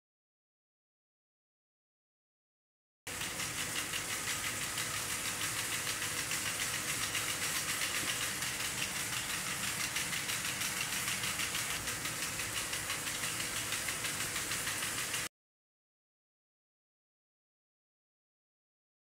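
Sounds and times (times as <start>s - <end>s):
small electric motor whirring: 3.1s - 15.3s.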